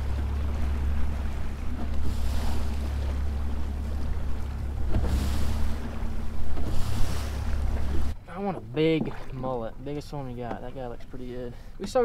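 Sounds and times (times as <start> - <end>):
outboard motor drone: 0.0 - 12.0
water rushing along hull: 0.0 - 12.0.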